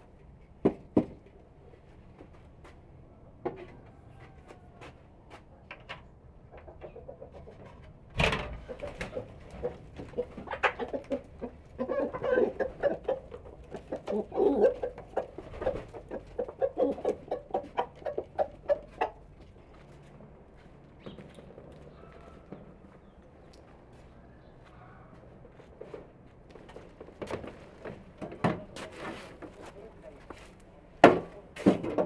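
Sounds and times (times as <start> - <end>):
hens clucking: 6.0 - 23.6.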